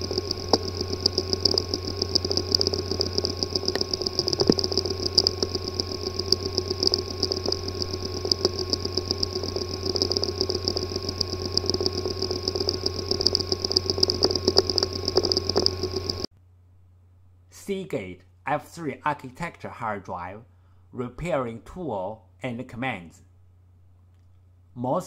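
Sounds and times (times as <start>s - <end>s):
hard drive buzz and whine: 0.0s - 16.3s
rapid irregular fine ticking: 0.0s - 16.3s.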